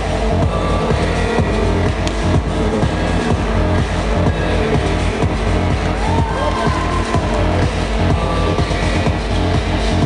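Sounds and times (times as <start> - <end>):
loud electronic dance music: 0.0 - 10.0.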